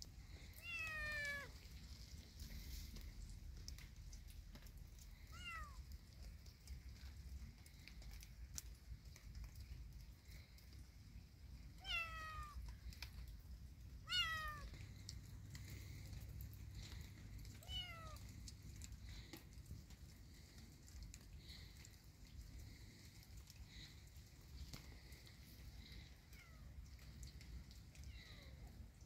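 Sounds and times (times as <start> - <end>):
kitten meowing: 0.6 - 1.6, 5.3 - 5.8, 11.8 - 12.6, 14.0 - 14.8, 17.6 - 18.2.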